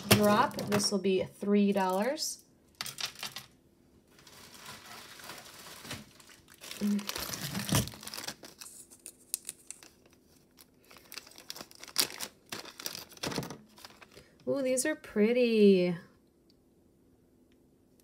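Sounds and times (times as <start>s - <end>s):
plastic bag crinkling: 1.7s - 14.4s.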